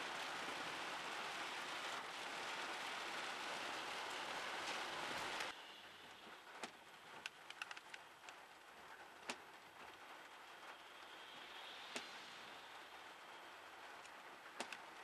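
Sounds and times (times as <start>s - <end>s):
rain hissing: 0.0s - 15.0s
raindrops tapping on car: 6.2s - 15.0s.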